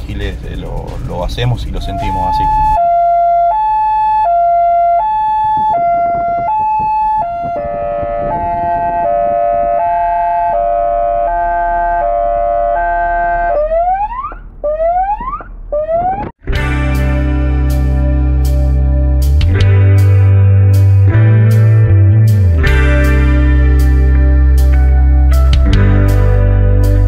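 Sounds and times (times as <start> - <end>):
police car siren wailing: 1.6 - 16.4.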